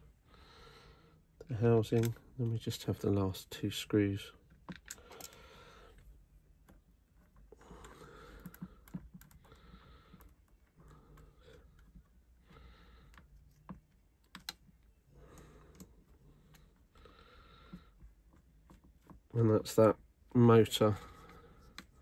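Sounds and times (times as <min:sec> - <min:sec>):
small parts clicking: 0:01.8 - 0:02.2, 0:04.6 - 0:05.5.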